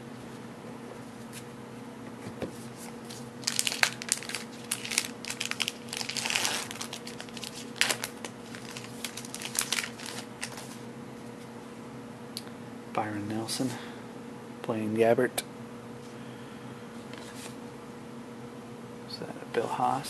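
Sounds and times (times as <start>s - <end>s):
wrapper being torn and crumpled: 3.0s - 10.8s.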